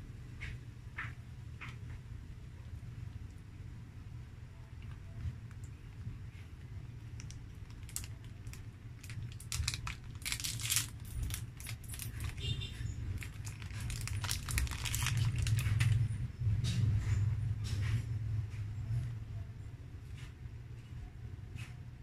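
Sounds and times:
plastic wrapper crinkling: 7.0s - 16.1s.

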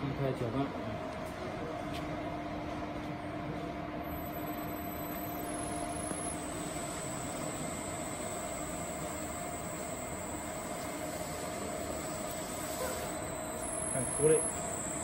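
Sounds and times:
mixer machine humming: 3.4s - 15.0s
electric lifting system: 3.9s - 15.0s
faint high whine: 3.9s - 15.0s.

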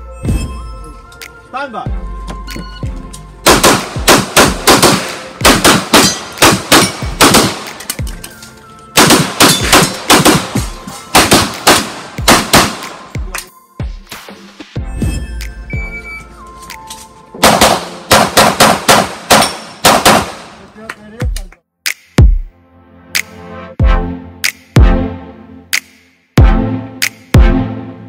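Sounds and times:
pistol firing rapidly: 3.5s - 7.8s, 9.0s - 12.9s, 17.4s - 20.6s.

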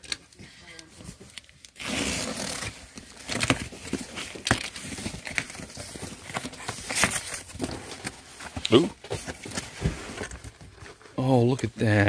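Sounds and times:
box cutter slitting packing tape: 1.7s - 5.5s
cardboard flaps rustling: 2.2s - 11.0s.

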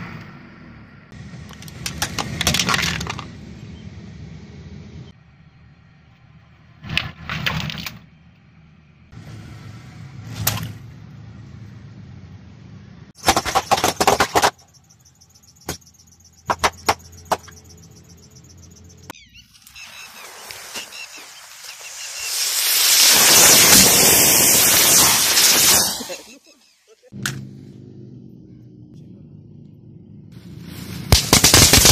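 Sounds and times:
low engine hum: 0.0s - 6.9s, 8.0s - 13.2s, 27.1s - 31.1s.

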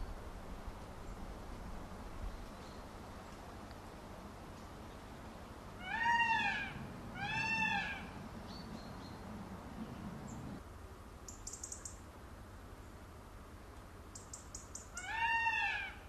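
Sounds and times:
peafowl calling: 5.8s - 9.3s, 14.8s - 16.0s.

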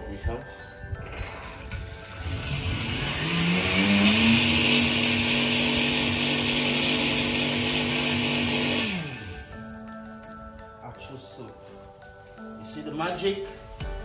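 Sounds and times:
blender motor running: 1.5s - 9.6s.

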